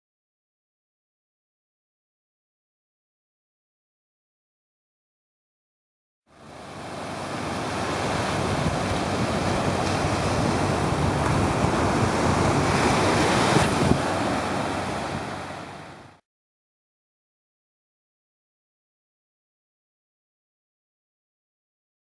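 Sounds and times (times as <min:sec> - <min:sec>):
ocean surf washing onto beach: 0:06.3 - 0:16.2
wind on microphone: 0:07.9 - 0:16.1.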